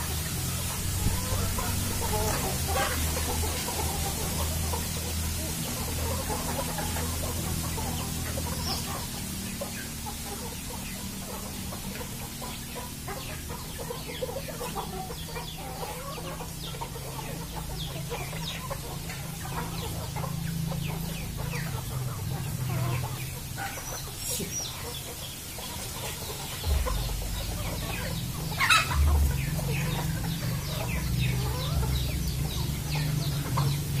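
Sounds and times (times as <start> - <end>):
chickens clucking: 0.0 - 34.0
low steady rumble: 26.2 - 34.0.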